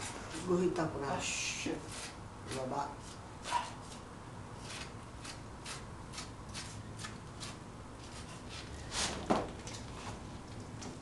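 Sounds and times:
knife cutting and tearing skin: 4.6s - 8.6s.

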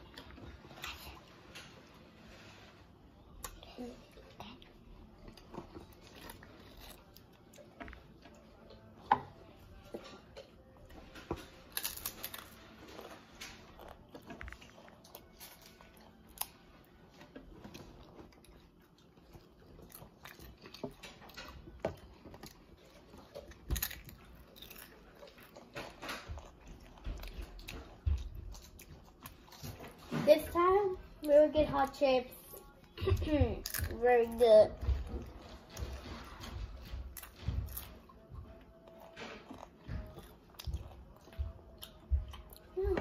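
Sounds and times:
chips being chewed: 5.1s - 8.9s, 9.8s - 30.1s, 33.6s - 34.0s, 35.4s - 42.8s.

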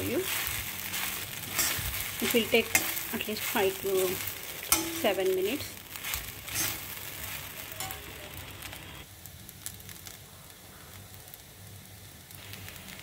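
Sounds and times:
spatula scraping a pan: 0.0s - 8.1s
frying sizzle in a pan: 0.0s - 13.0s.

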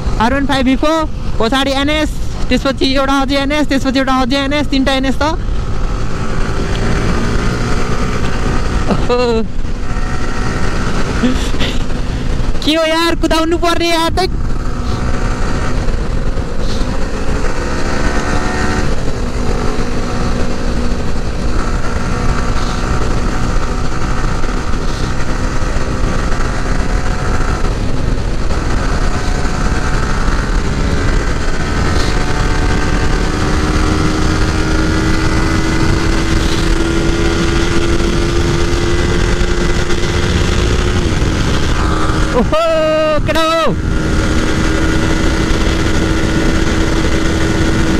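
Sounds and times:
motorcycle engine running hard: 0.0s - 47.9s
wind rush on microphone: 0.0s - 47.9s.

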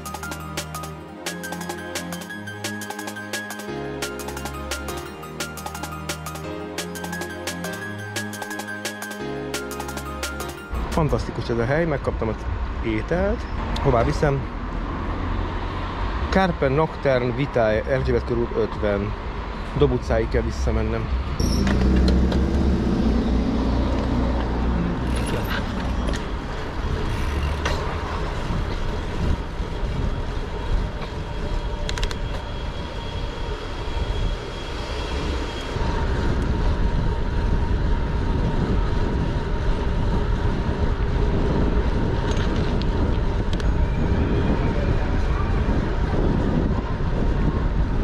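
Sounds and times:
city street traffic: 0.0s - 48.0s
wind rumble on microphone: 19.0s - 48.0s.

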